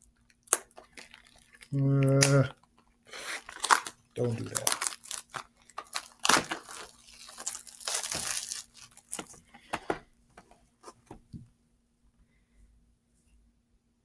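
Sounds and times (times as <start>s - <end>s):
plastic wrapper tearing and crinkling: 0.0s - 9.9s.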